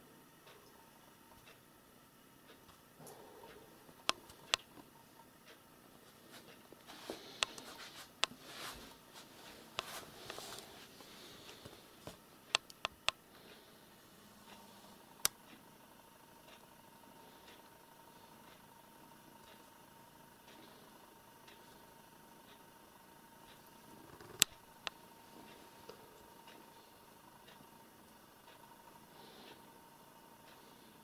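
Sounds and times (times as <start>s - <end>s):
sharp irregular clicks: 0.3s - 1.7s, 2.4s - 5.7s, 9.8s - 31.0s
soft rustling: 6.0s - 12.3s.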